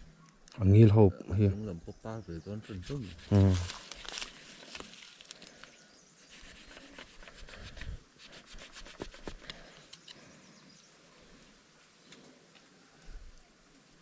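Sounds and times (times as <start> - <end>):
hand tool scraping a branch: 2.6 - 5.4, 6.3 - 10.1.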